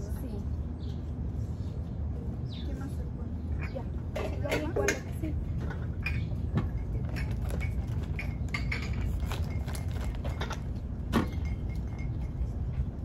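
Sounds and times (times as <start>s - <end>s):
utensil clinking in metal bowl: 6.0s - 12.6s.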